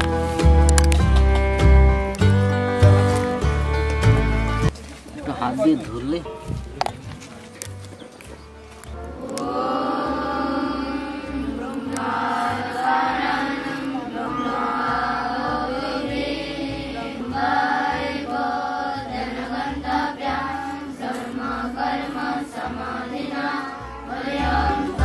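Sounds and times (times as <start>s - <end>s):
children chanting a prayer: 9.1s - 25.0s.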